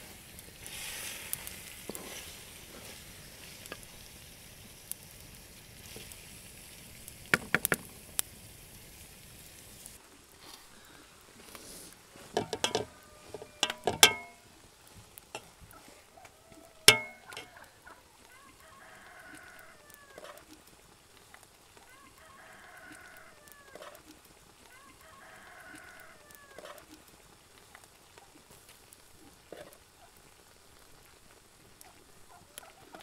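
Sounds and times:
meat sizzling in a pot: 0.0s - 33.0s
wooden spatula stirring: 12.1s - 16.2s, 16.8s - 17.5s
metal spoon knocking on pot: 12.4s - 14.4s, 16.9s - 17.5s.

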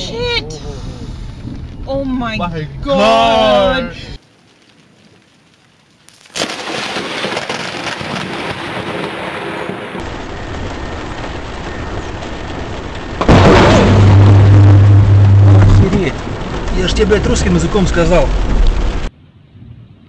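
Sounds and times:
rain: 0.0s - 19.2s
loud thunder crash: 6.4s - 19.1s
thunder crack and rumble: 6.4s - 19.1s.

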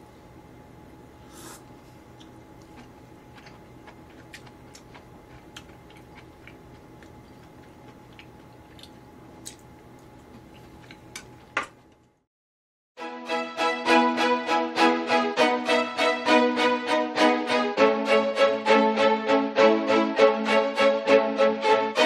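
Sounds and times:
faint chewing: 2.1s - 11.6s.

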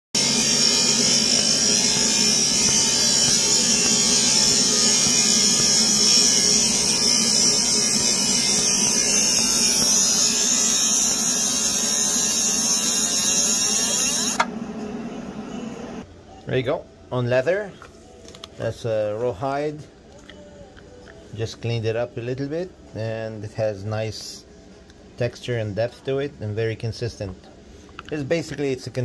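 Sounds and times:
fans hissing: 0.2s - 16.0s
faint machine whine: 0.2s - 29.0s.

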